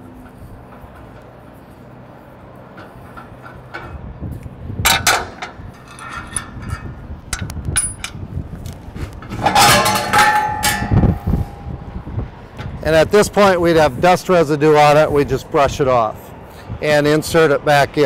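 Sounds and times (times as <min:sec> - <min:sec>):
metal screen scraping and clattering: 0:04.9 - 0:08.2, 0:08.9 - 0:11.7
steel clinks and clanks: 0:04.9 - 0:08.2, 0:09.2 - 0:11.8.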